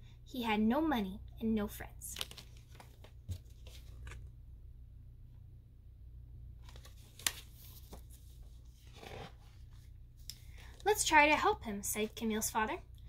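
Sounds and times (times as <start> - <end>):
faint paper rustles: 2.2 - 4.3, 6.6 - 10.9
page turning: 2.2 - 4.3, 6.6 - 9.8
steady low hum: 2.6 - 13.0.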